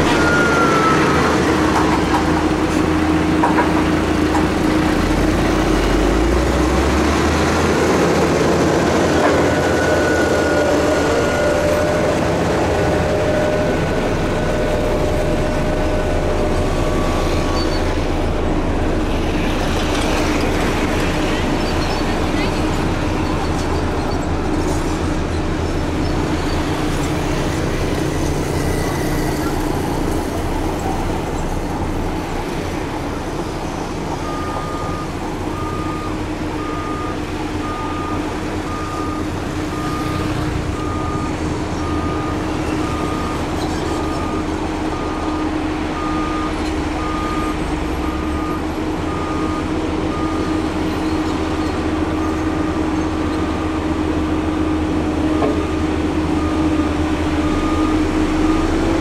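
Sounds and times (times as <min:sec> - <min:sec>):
reversing alarm beeping: 0:00.0 - 0:01.8, 0:09.0 - 0:18.2, 0:27.4 - 0:30.1, 0:34.2 - 0:51.5, 0:56.3 - 0:59.0
diesel machine running: 0:00.0 - 0:59.0.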